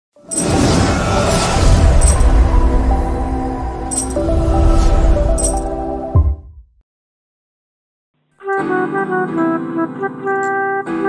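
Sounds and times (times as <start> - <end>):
cinematic whoosh: 0.3 - 5.9.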